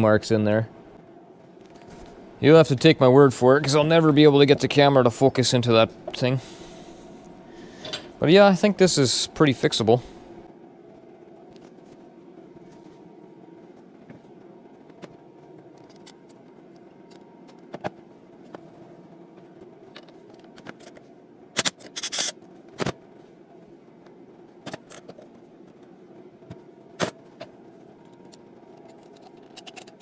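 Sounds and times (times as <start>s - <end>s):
steady background hum: 0.0s - 30.0s.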